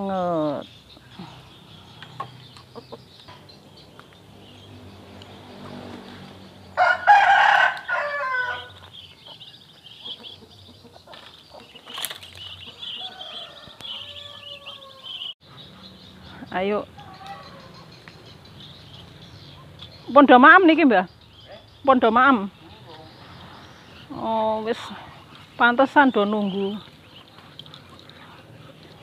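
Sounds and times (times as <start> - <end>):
rooster crowing: 6.8 - 8.8, 12.9 - 15.4.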